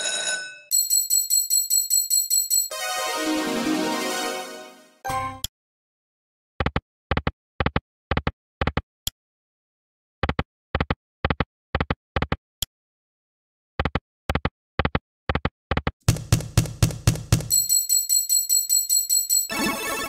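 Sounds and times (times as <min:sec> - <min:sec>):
slot machine reels stopping: 0:02.7 - 0:05.3, 0:19.5 - 0:20.0.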